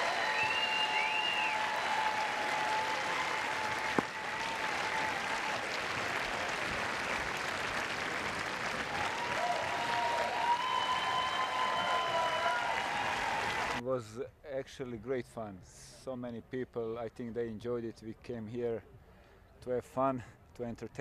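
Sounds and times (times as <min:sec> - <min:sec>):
crowd applauding: 0:00.0 - 0:13.8.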